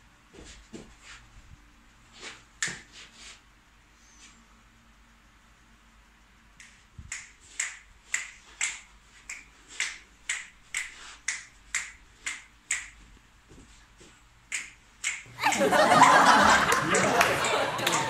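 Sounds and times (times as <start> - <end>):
finger snapping: 6.6 - 13.0, 14.5 - 15.6.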